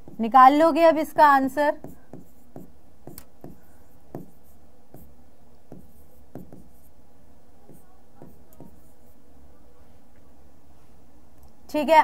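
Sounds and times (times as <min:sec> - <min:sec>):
marker pen on whiteboard: 0:00.0 - 0:07.0, 0:07.6 - 0:09.3.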